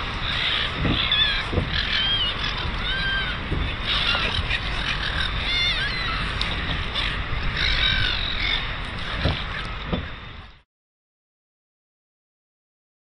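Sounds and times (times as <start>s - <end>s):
gulls calling: 0.0s - 10.6s
low rumble: 0.0s - 10.6s.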